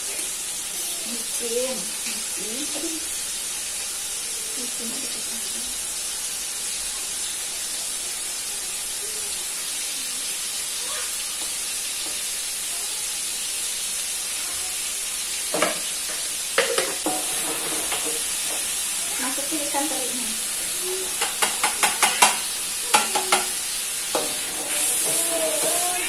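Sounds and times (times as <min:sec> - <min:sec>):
oil sizzling in a pan: 0:00.0 - 0:26.0
spatula clattering against pan: 0:16.6 - 0:18.7, 0:21.1 - 0:26.0.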